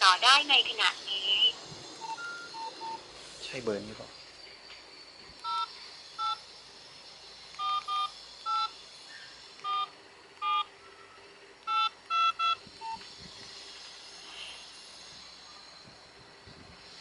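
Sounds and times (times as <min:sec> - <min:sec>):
touch-tone keypad beeps: 0:02.0 - 0:03.0, 0:11.7 - 0:13.0.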